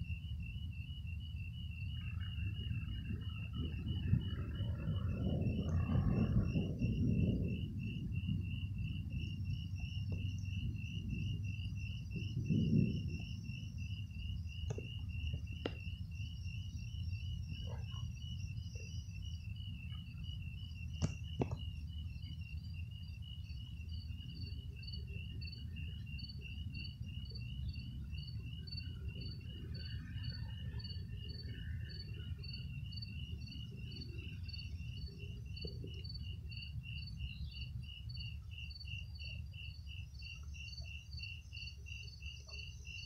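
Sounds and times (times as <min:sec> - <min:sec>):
crickets chirping: 0:00.0 - 0:43.0
higher-pitched insect chirping: 0:00.0 - 0:43.0
low rumble: 0:02.0 - 0:20.2.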